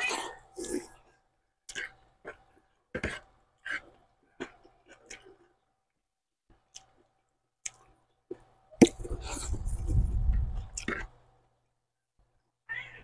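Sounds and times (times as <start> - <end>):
wet chewing mouth clicks: 6.6 - 11.1.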